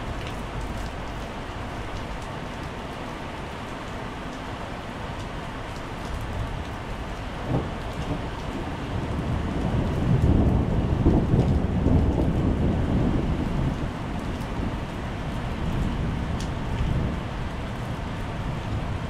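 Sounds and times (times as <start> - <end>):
heavy rain on paving: 0.0 - 19.0
deep rumble of thunder: 7.3 - 19.0.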